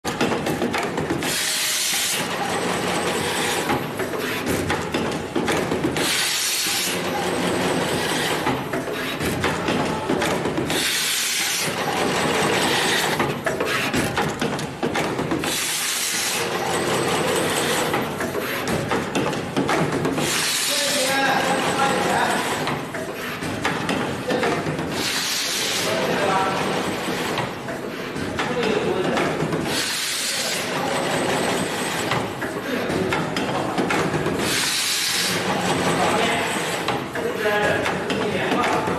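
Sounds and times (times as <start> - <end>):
machine clicking and clattering: 0.0 - 38.9
pneumatic air hiss: 1.2 - 2.2, 15.4 - 16.3, 34.4 - 35.4.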